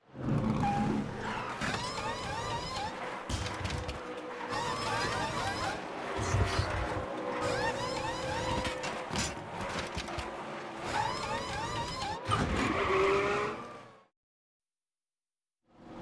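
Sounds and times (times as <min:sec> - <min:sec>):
car noise: 0:00.0 - 0:14.1
short squeaks: 0:00.4 - 0:10.2, 0:10.8 - 0:12.9.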